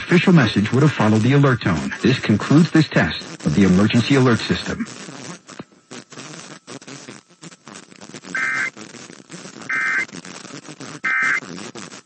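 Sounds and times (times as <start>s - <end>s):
faint noise: 0.0s - 12.0s
buzzy warbling tone bursts: 8.4s - 8.7s, 9.7s - 10.0s, 11.1s - 11.4s.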